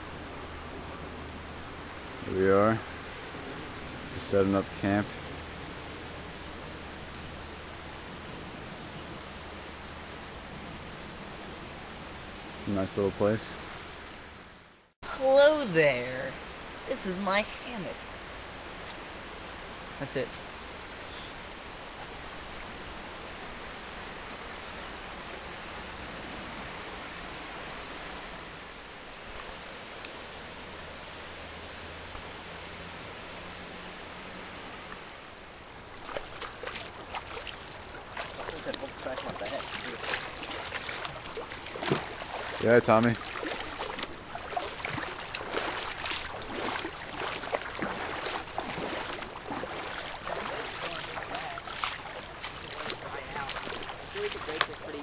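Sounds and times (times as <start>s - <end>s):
river flowing over rocks: 15.1s - 55.0s
person wading with splashes: 35.3s - 55.0s
water lapping on stony shore: 35.4s - 55.0s.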